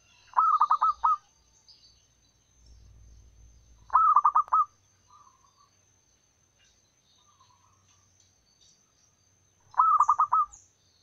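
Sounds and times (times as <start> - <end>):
dove cooing: 0.2 - 1.3, 3.9 - 5.5, 9.7 - 10.6.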